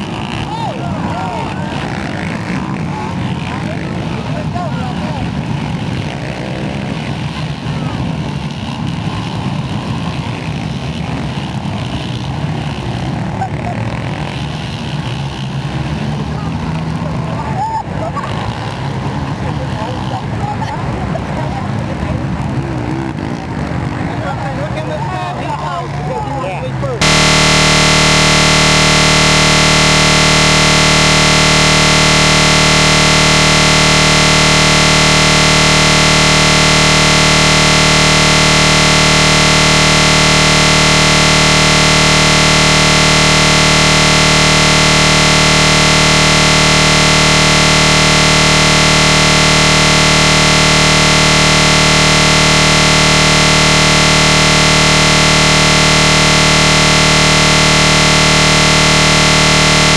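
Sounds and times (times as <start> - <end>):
steady electronic buzz: 27.0 - 59.9.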